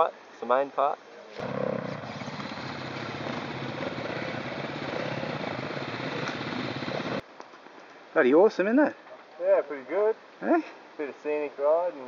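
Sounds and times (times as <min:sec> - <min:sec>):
dirt bike engines running: 0:01.4 - 0:07.2.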